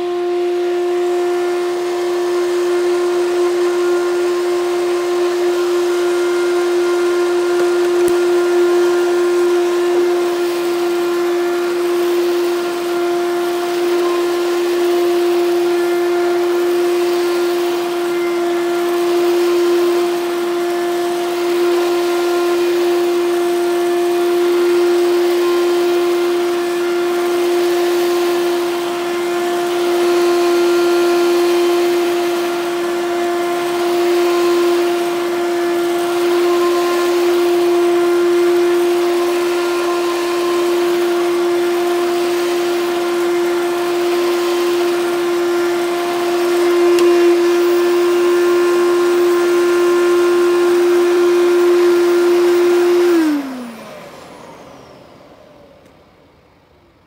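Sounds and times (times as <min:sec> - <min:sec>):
vacuum cleaner running: 0:00.0 - 0:57.0
vacuum motor spinning down: 0:00.0 - 0:57.0.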